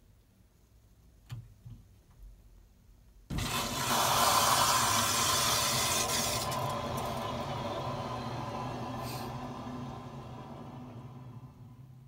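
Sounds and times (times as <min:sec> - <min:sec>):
water rushing through pipe: 0:03.3 - 0:11.6.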